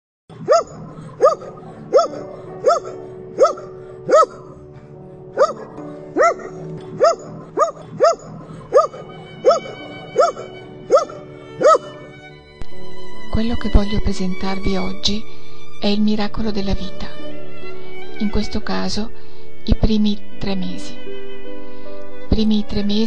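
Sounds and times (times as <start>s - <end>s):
dog barking: 0.3s - 4.6s, 5.4s - 12.1s
quiet background music: 0.3s - 23.0s.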